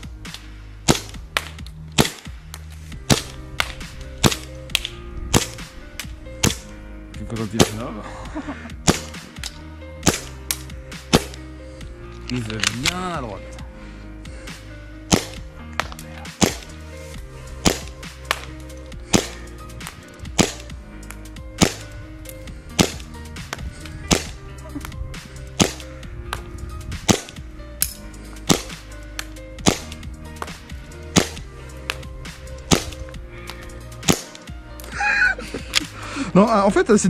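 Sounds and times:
background music: 0:00.0 - 0:37.0
airsoft pistol shots: 0:00.9 - 0:02.3, 0:08.8 - 0:09.2, 0:10.0 - 0:10.3, 0:15.1 - 0:16.7, 0:17.6 - 0:18.5, 0:19.1 - 0:19.4, 0:20.4 - 0:20.7, 0:21.6 - 0:21.9, 0:22.8 - 0:23.0, 0:24.1 - 0:24.4, 0:25.6 - 0:25.8, 0:27.1 - 0:27.4, 0:28.5 - 0:28.8, 0:29.6 - 0:30.0, 0:31.2 - 0:31.4, 0:32.7 - 0:33.0, 0:34.0 - 0:34.3.

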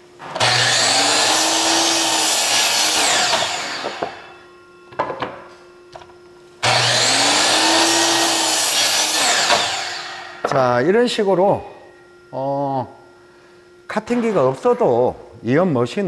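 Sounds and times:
saw cutting wooden board: 0:00.2 - 0:04.3, 0:06.6 - 0:10.6
miter saw whining: 0:00.3 - 0:04.6, 0:06.6 - 0:11.2.

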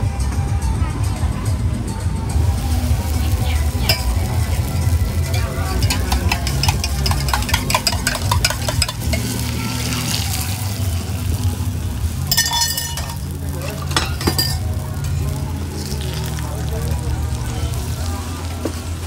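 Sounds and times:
egg sizzling on griddle: 0:02.5 - 0:19.0
utensil clinking against mug: 0:05.7 - 0:09.3, 0:12.3 - 0:13.2, 0:13.8 - 0:14.7.

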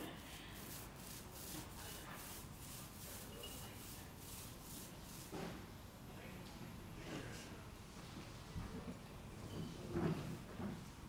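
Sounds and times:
rhythmic rubbing against wall: 0:00.0 - 0:05.4.

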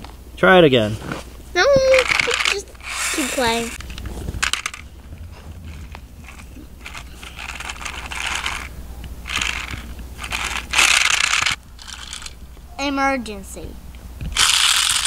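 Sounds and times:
toy wheels scraping on asphalt: 0:01.0 - 0:08.7, 0:09.3 - 0:12.4, 0:14.4 - 0:15.0
toy clicks: 0:01.9 - 0:04.8, 0:06.3 - 0:08.7, 0:09.3 - 0:12.4, 0:14.4 - 0:15.0.

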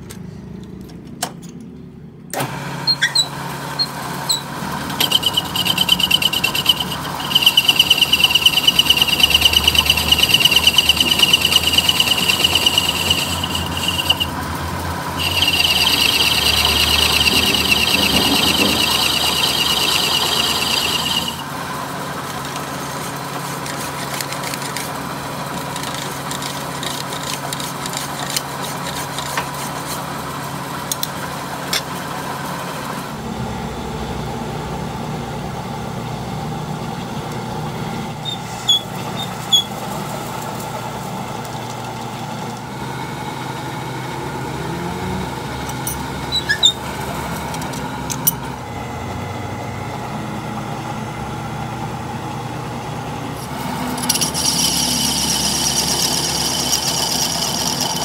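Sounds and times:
metal lathe humming: 0:03.0 - 0:32.0, 0:43.6 - 0:58.0.

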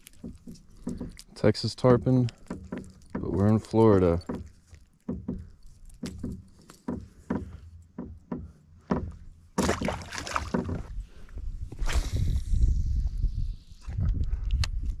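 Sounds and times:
fish knocking against kayak hull: 0:00.0 - 0:01.4, 0:02.4 - 0:11.0.

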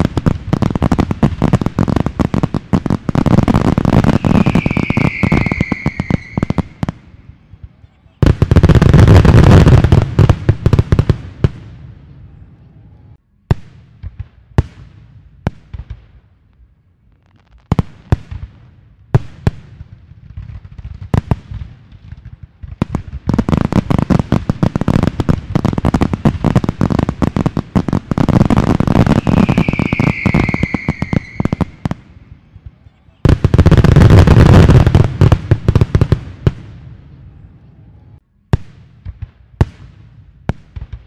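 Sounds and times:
high whistling firework: 0:00.0 - 0:10.4, 0:22.8 - 0:35.4
fireworks bangs and crackling: 0:00.0 - 0:41.0.

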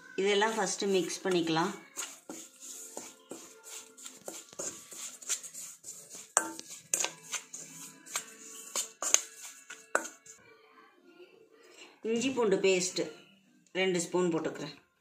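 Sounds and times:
background music: 0:00.0 - 0:15.0
spoon clinking in steel bowl: 0:06.2 - 0:10.3.

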